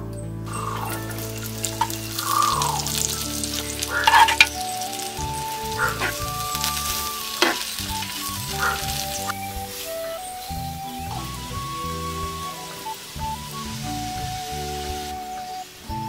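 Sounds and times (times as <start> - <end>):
onions sizzling in oil: 0.5 - 16.0
wooden spoon scraping a pan: 0.8 - 5.0, 5.7 - 9.2.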